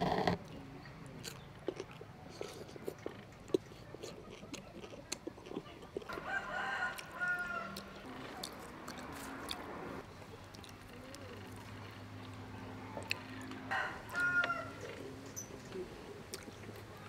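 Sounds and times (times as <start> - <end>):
rooster crowing: 6.2 - 7.9, 12.8 - 15.0.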